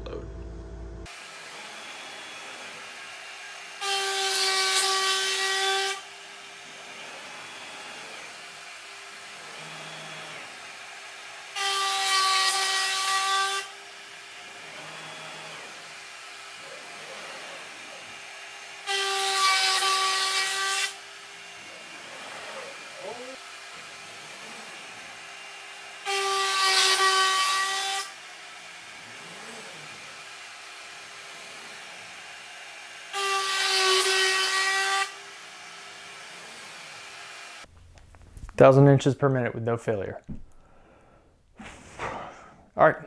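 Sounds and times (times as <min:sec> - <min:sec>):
router spindle whining: 0:00.0 - 0:04.2, 0:06.2 - 0:12.0, 0:13.2 - 0:26.4
router bit cutting plywood: 0:01.1 - 0:37.7.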